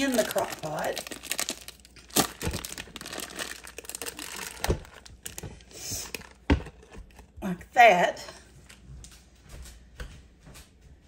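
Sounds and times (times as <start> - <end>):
plastic wrapping crinkling: 0.0 - 7.4.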